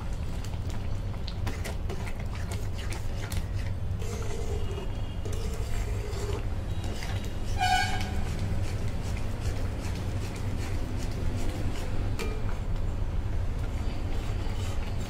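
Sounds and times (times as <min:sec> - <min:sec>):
spatula scraping steel pan: 0:04.0 - 0:12.0.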